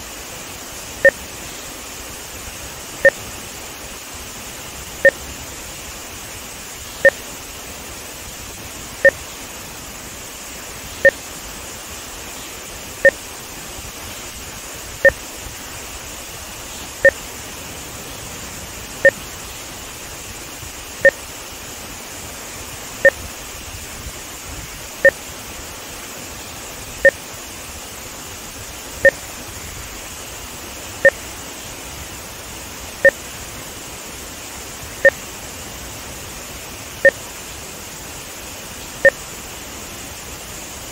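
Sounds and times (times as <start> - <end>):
water rushing below a dam: 0.0 - 40.9
short electronic two-tone beeps: 7.0 - 7.2, 11.0 - 11.2, 29.0 - 29.2.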